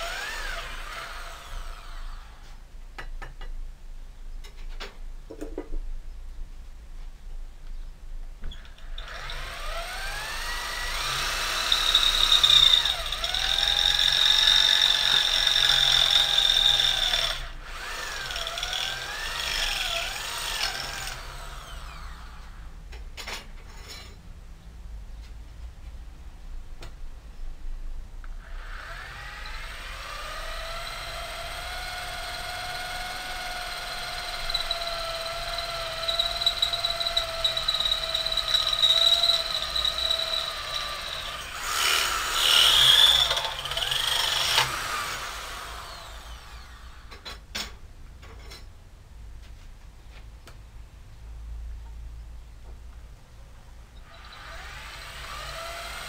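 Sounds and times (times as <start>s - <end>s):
electric drill boring into metal: 0.0s - 2.4s, 8.7s - 22.6s, 28.4s - 47.2s, 54.0s - 56.0s.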